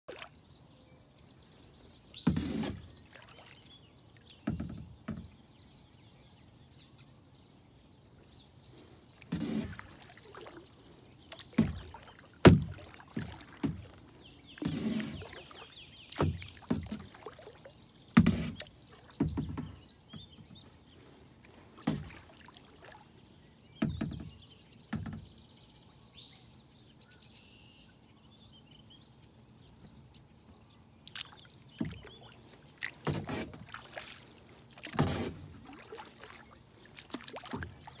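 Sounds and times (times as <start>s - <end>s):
paddle strokes splashing in water: 0.1s - 0.6s, 1.6s - 5.4s, 8.6s - 24.4s, 31.0s - 38.0s.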